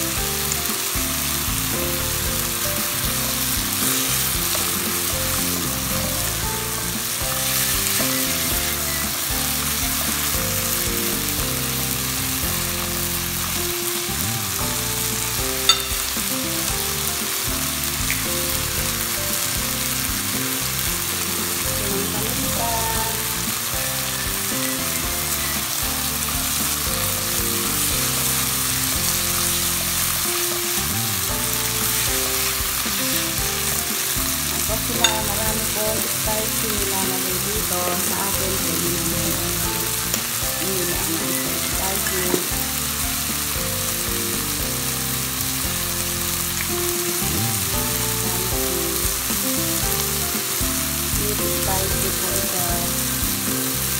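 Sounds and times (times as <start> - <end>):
meat sizzling in a frying pan: 0.0 - 53.9
spatula stirring: 2.7 - 42.6.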